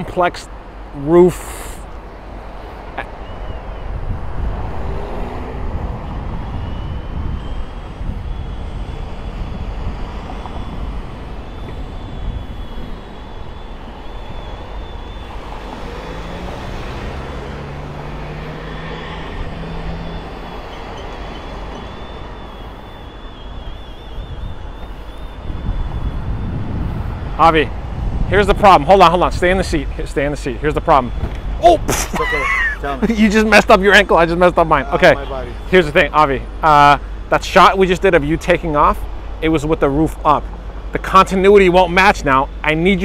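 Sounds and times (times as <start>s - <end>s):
street traffic noise: 0.0s - 43.0s
soft top motor whine: 1.8s - 31.6s.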